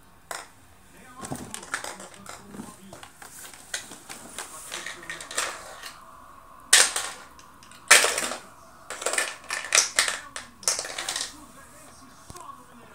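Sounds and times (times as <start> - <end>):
plastic toys clacking: 0.3 - 0.5, 1.2 - 6.0, 6.7 - 11.4.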